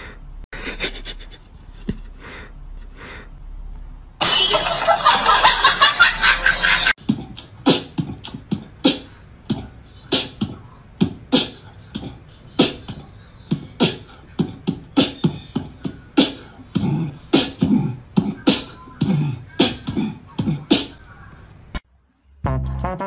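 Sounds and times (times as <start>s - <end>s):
beatboxing: 7.0s - 21.0s.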